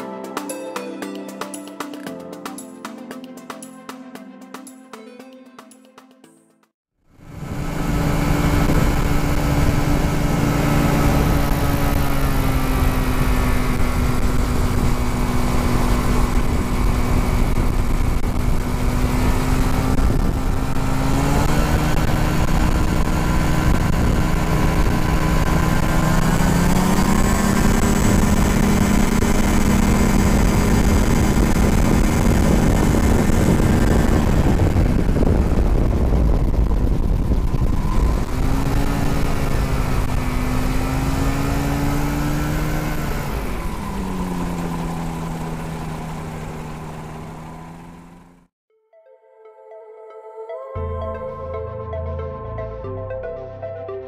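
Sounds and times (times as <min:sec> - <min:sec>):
gyroplane engine and propeller: 0:07.1 - 0:48.5
wind rumble on microphone: 0:07.2 - 0:48.0.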